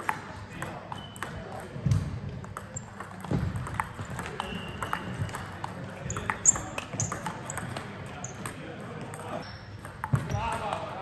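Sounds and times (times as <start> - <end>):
table tennis ball clicking: 2.4 - 10.7.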